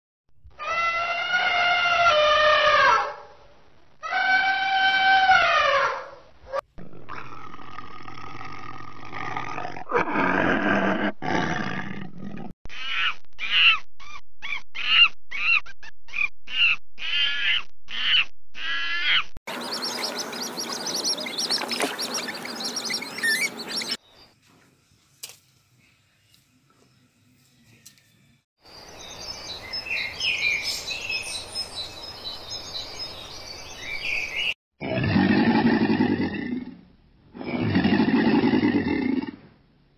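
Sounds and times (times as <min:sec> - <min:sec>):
rough animal call: 0:04.0 - 0:15.6, 0:16.5 - 0:24.0.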